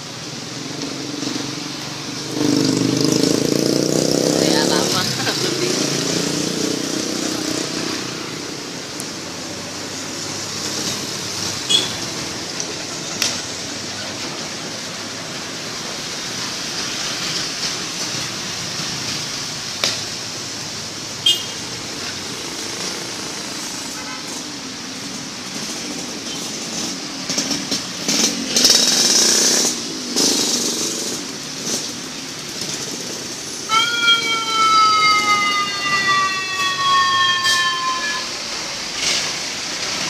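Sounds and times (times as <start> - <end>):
engine and road noise: 0.0 - 40.0
motor scooters passing: 0.0 - 40.0.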